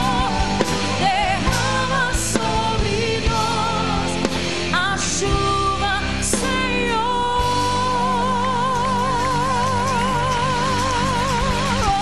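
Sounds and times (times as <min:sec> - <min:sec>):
band with electric guitar: 0:00.0 - 0:12.0
woman singing with vibrato: 0:00.0 - 0:12.0.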